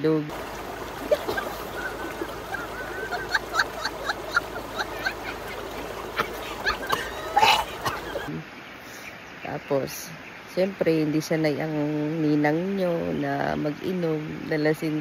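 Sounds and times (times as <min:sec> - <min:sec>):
river water rushing: 0:00.3 - 0:08.8
high-pitched laughter: 0:01.0 - 0:08.3.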